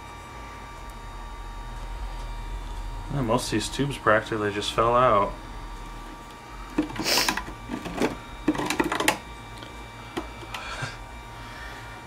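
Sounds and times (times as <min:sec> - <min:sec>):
radio cabinet clicks and rattles: 0:06.8 - 0:09.2.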